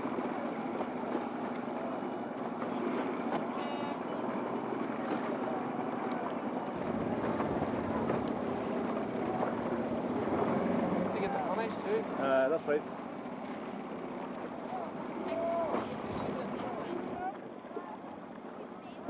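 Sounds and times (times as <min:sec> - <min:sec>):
water washing: 0:00.0 - 0:17.3
wind buffeting microphone: 0:03.2 - 0:12.2, 0:12.8 - 0:17.3.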